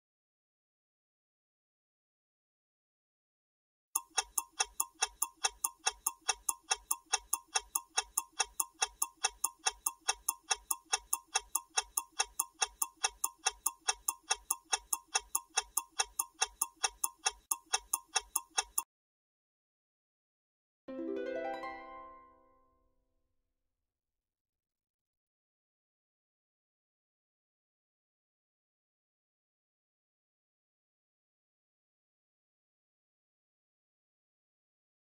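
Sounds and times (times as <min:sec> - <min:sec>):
countdown timer ticking: 0:04.0 - 0:18.8.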